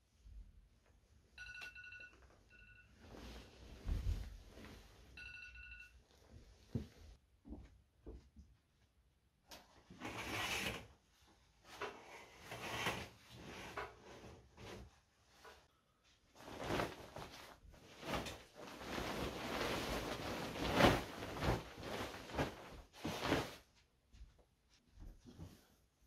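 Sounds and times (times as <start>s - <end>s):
bed sheets rustling: 2.7s - 5.7s, 9.9s - 26.0s.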